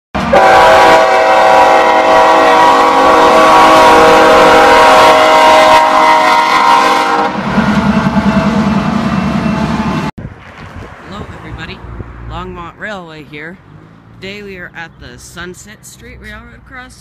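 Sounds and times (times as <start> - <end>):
locomotive air horn chord: 0.2 - 10.1
passing train rumble: 0.2 - 17.0.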